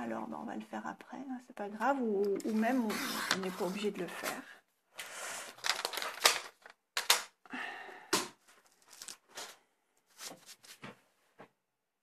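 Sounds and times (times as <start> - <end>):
paper rustling and tapping: 5.6 - 7.4, 8.2 - 11.0.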